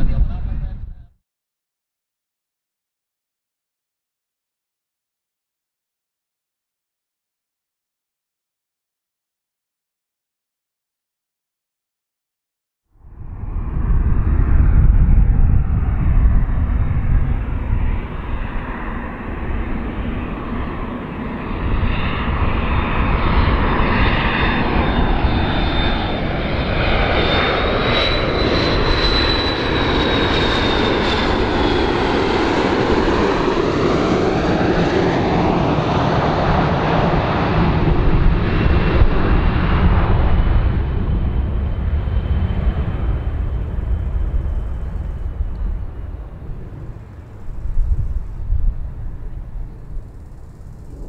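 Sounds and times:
jet engine rumble: 0.0 - 1.2, 12.9 - 51.0
high jet whine: 13.0 - 51.0.

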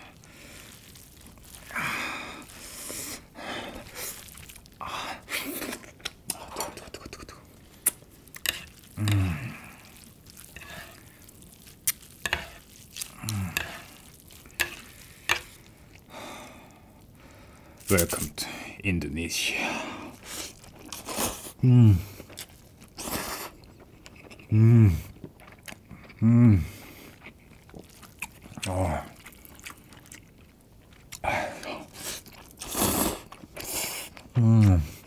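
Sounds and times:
noodles squishing and rustling: 0.0 - 26.2, 26.8 - 35.0.

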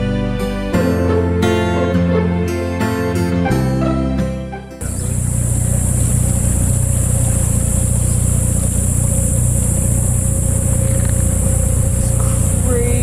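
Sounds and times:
guitar music: 0.0 - 13.0
outboard motor droning: 4.8 - 13.0.

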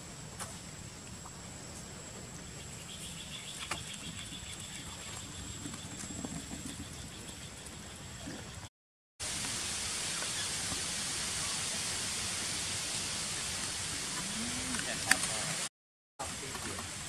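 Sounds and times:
rapid pulsing insect chirp: 0.0 - 8.6.

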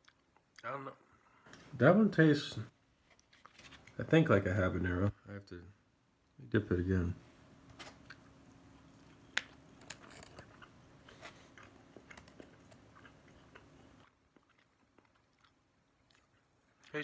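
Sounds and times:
person chewing: 0.0 - 0.6, 8.0 - 17.0
faint steady hum: 0.0 - 17.0.

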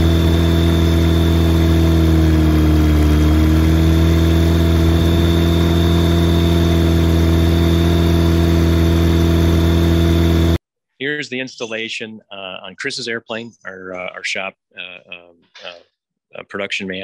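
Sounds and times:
aircraft engine running: 0.0 - 10.6.

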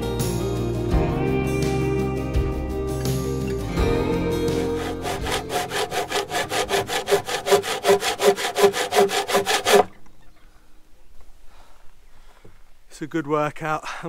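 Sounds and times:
handsaw cutting wood: 4.5 - 10.0.

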